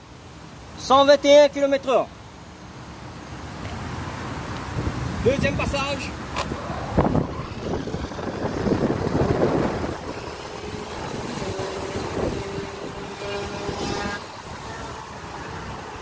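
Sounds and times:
wind noise: 4.6s - 16.0s
electric motor whining: 6.5s - 16.0s.

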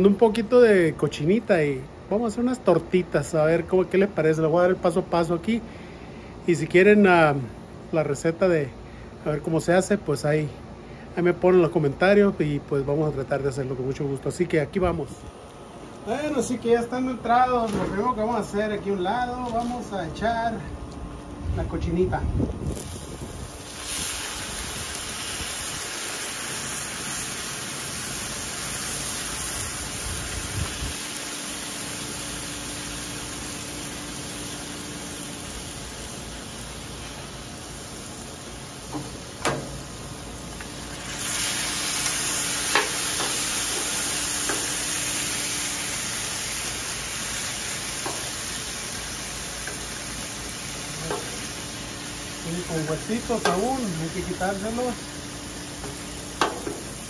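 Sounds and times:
meat sizzling on griddle: 22.6s - 57.0s
metal spatulas clicking on griddle: 42.7s - 43.9s.

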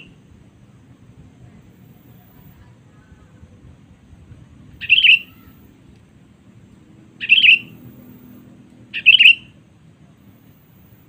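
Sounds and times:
bird calling: 4.8s - 5.7s, 7.2s - 7.9s, 8.9s - 9.6s.

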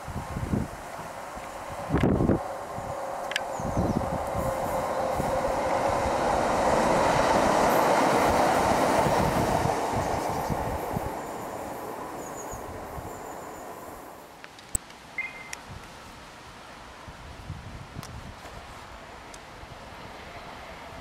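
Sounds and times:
train passing on rails: 0.0s - 14.4s, 15.2s - 21.0s.

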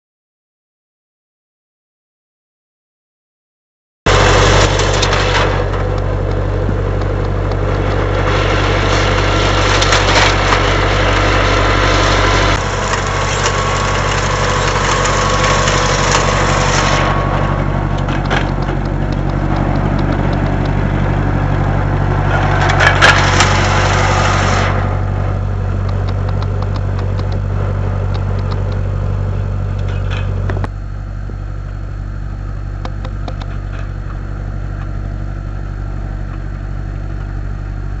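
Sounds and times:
tractor engine running: 4.1s - 38.0s.

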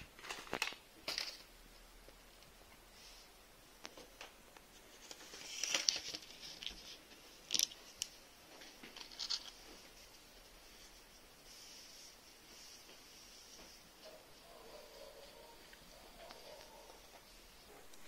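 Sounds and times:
craft materials rustling: 4.7s - 18.0s.

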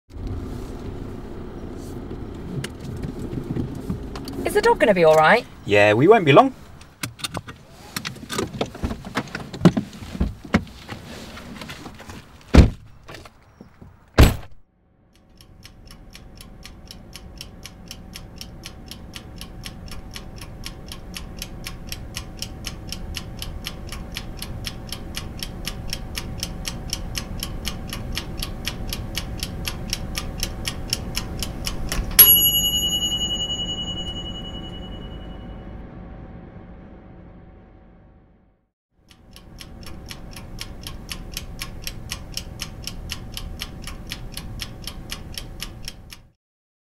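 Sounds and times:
car door thuds: 12.5s - 12.9s, 14.2s - 14.6s
clock-like ticking: 15.2s - 32.2s, 39.0s - 46.4s
bright bell-like ring: 32.2s - 35.8s.

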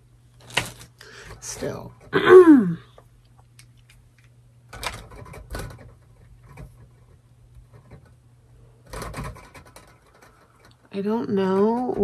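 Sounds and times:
steady low hum: 0.0s - 12.0s
metal tubes knocking and clacking: 8.9s - 12.0s.

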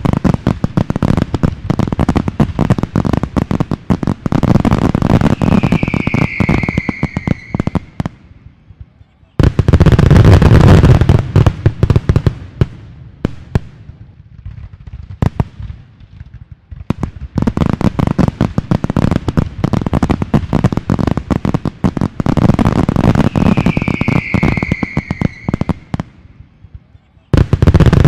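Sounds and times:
fireworks bangs and crackling: 0.0s - 28.0s
high tone falling in pitch: 5.4s - 7.9s, 23.4s - 25.7s.

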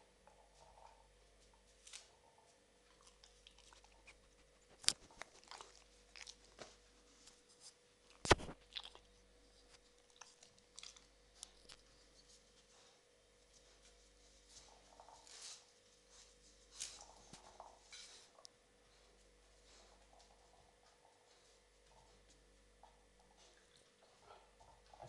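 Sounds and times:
puppy crunching dry kibble: 2.0s - 6.8s, 8.1s - 12.0s.

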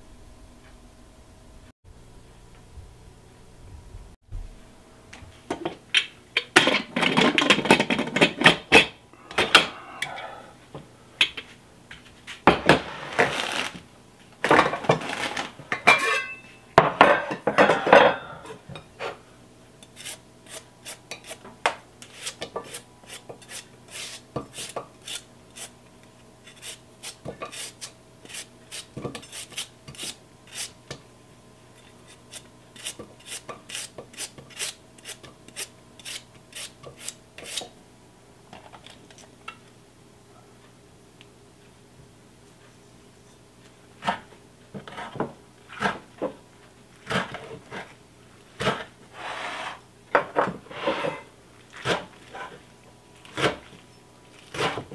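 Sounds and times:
metal pot and lid clattering: 15.8s - 18.2s
knife chipping radish: 19.9s - 21.4s, 22.0s - 25.8s, 26.5s - 30.8s, 32.3s - 37.7s.

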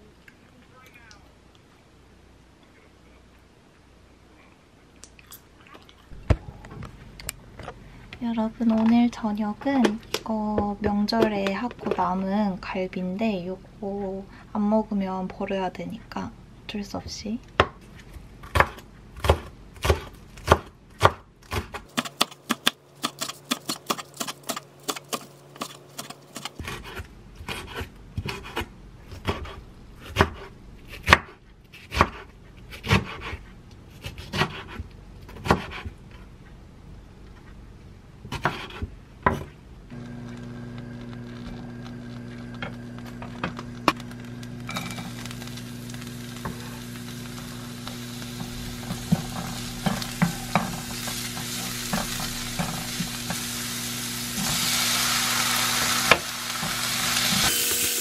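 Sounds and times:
knife chopping on wooden board: 18.4s - 33.4s, 34.0s - 36.0s, 38.3s - 39.5s
steady hum: 36.2s - 58.0s
oil sizzling in frying pan: 44.4s - 58.0s.

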